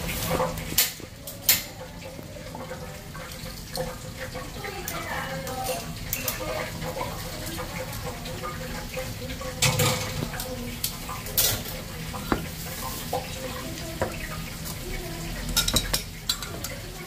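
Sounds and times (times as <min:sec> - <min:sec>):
dishes and utensils knocking: 0:09.6 - 0:10.3, 0:11.4 - 0:13.3, 0:15.5 - 0:16.9.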